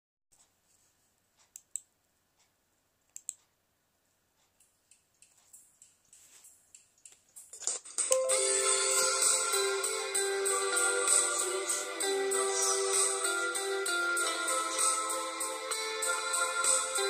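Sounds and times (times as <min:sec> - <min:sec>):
computer mouse clicks: 0:01.4 - 0:02.5, 0:03.1 - 0:03.5, 0:04.4 - 0:07.4.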